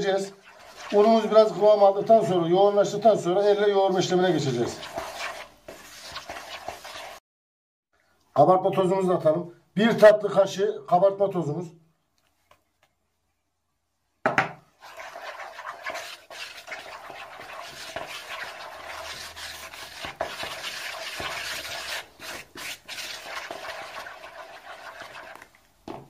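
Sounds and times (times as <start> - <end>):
spoon scraping dough in bowl: 0.0 - 2.5, 3.9 - 7.2, 14.8 - 25.6.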